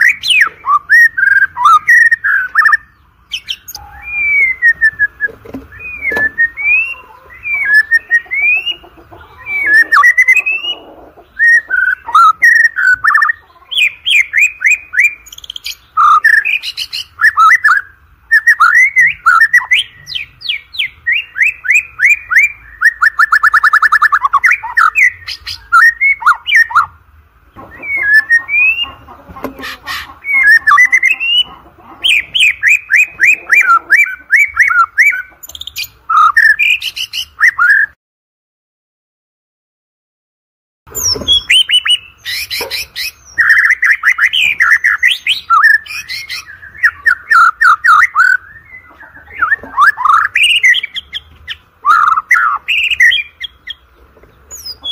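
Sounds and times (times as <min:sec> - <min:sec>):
bird singing whistled phrases: 0:00.0 - 0:08.8, 0:09.4 - 0:10.8, 0:11.4 - 0:26.9, 0:27.8 - 0:29.0, 0:30.2 - 0:38.0, 0:40.9 - 0:51.2, 0:51.8 - 0:53.8.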